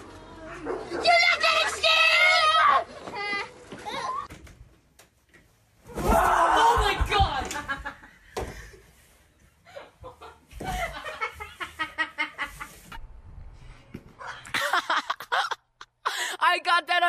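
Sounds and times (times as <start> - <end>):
people laughing in cackling bursts: 14.5 - 16.2.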